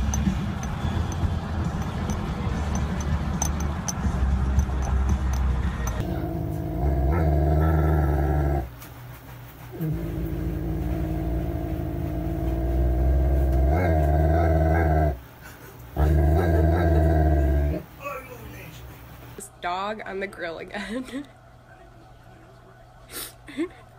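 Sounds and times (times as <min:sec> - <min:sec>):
dog growling: 0:06.0 - 0:08.7, 0:09.7 - 0:15.2, 0:16.0 - 0:17.8.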